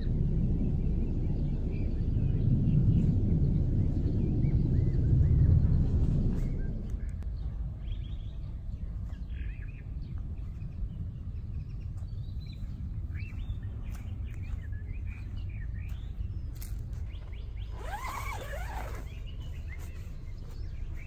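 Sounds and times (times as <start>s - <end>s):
low outdoor rumble: 0.0s - 21.0s
small birds chirping: 0.0s - 21.0s.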